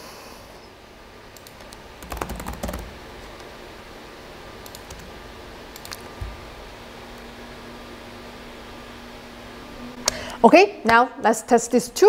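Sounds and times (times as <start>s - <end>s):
laptop keyboard typing: 1.4s - 3.0s, 4.6s - 5.1s, 5.7s - 6.1s.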